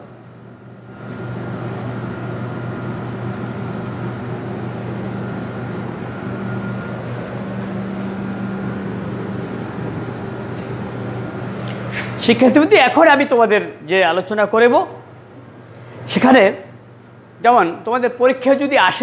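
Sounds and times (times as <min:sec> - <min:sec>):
low machine drone: 0:00.0 - 0:12.7.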